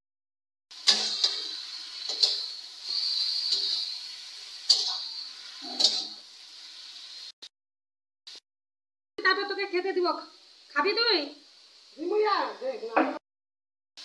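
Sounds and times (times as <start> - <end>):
metal spatula scraping wok: 0.7 - 6.4
meat sizzling in hot oil: 0.7 - 7.5, 9.2 - 13.0.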